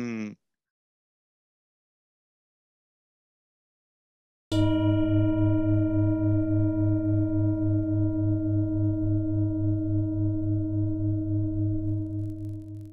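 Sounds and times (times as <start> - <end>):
singing bowl ringing: 4.5 - 11.9.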